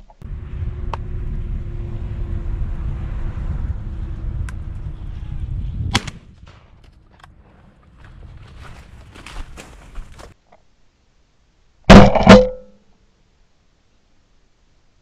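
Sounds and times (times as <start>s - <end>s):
wind rumbling on microphone: 0.2s - 10.4s
shotgun firing: 5.9s - 6.7s.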